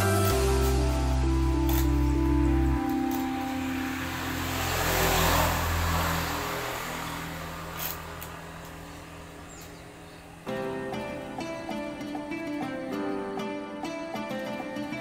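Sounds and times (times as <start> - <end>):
motor vehicle passing: 0.3 - 12.3.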